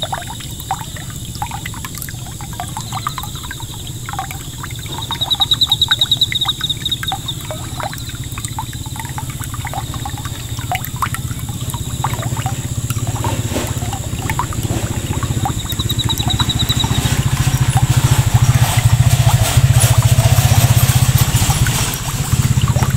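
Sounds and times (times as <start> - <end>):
water splashing onto pond: 0.0 - 22.9
high-pitched chirping: 2.6 - 8.3, 13.8 - 18.8.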